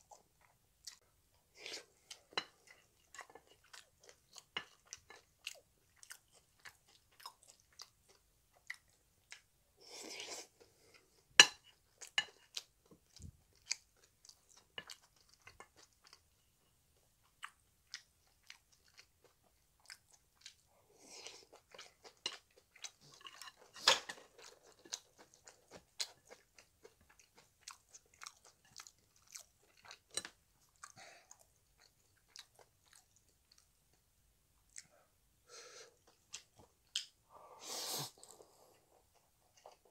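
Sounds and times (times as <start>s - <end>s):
close chewing and crunching: 0.0s - 35.1s.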